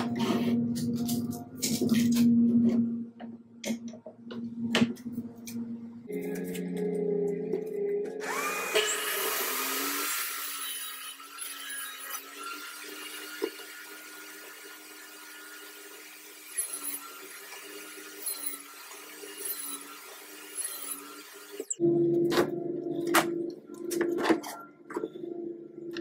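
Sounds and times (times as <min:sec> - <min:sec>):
table saw motor whining: 0:08.2 - 0:21.8.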